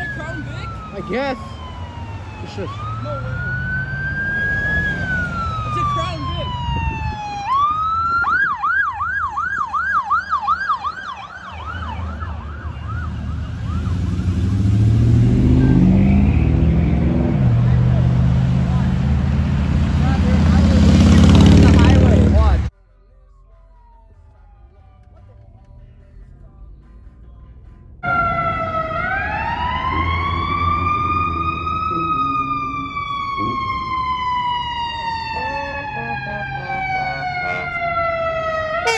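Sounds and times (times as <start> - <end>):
police siren yelping: 0.0 - 14.2, 28.0 - 38.9
city traffic rumble: 0.0 - 38.9
vehicle engine: 0.0 - 38.9.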